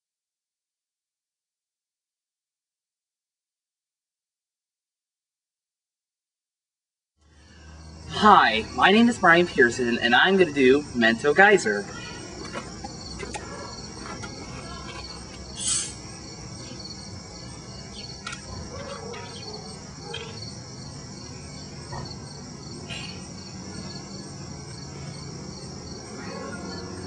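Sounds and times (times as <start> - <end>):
crickets chirping: 7.2 - 27.0.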